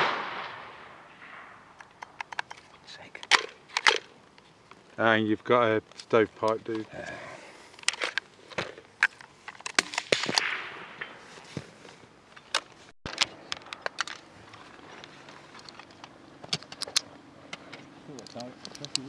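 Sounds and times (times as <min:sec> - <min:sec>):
rifle metallic clicks and clacks: 0:01.8 - 0:04.1, 0:07.8 - 0:11.2, 0:12.4 - 0:19.0.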